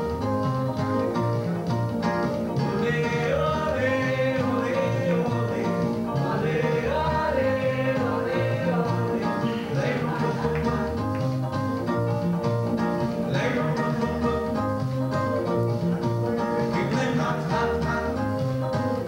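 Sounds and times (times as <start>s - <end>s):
live band playing soca: 0.0s - 19.0s
man singing: 2.5s - 11.4s, 13.1s - 19.0s.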